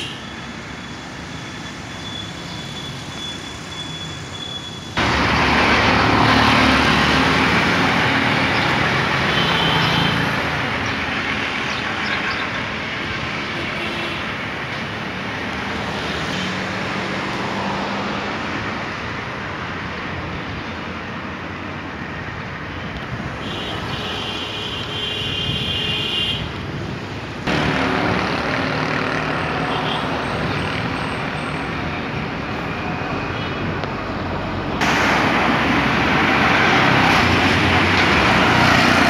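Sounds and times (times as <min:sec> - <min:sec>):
road traffic noise: 0:00.0 - 0:39.0
motorcycle riding alongside: 0:27.4 - 0:32.4.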